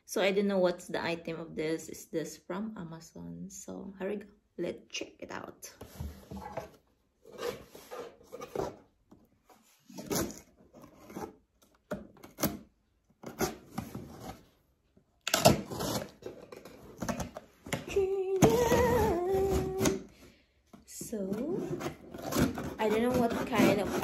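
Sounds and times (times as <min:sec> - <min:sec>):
tape tearing off cardboard: 0:15.3 - 0:16.3.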